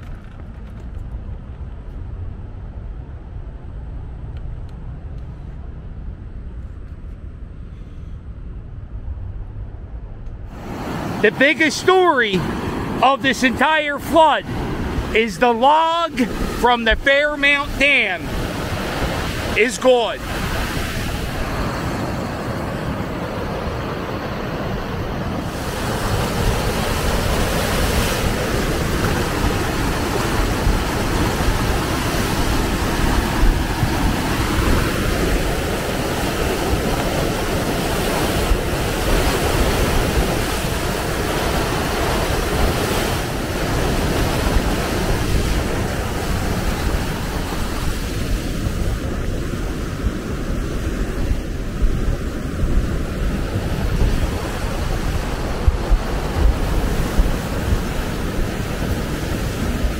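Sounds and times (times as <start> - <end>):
river rushing and churning: 10.5 - 59.9
wind buffeting microphone: 14.2 - 17.0, 17.6 - 59.9.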